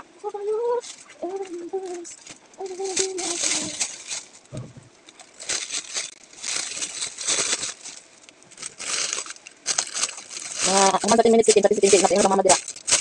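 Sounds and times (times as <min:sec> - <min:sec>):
plastic bag crinkling: 0:00.8 - 0:13.0.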